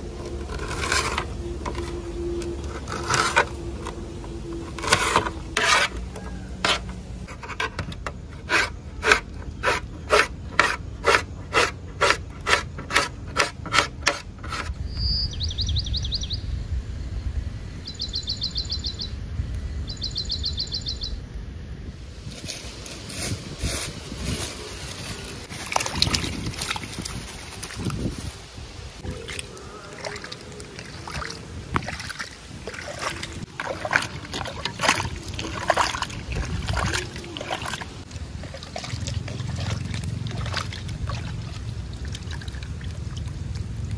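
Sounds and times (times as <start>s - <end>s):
bird trilling: 14.8s - 16.6s, 17.8s - 19.2s.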